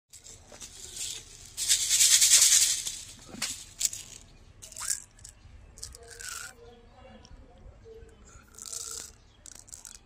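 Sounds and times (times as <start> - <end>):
candy rattling in plastic bottle: 0.1 - 6.5, 8.5 - 10.0.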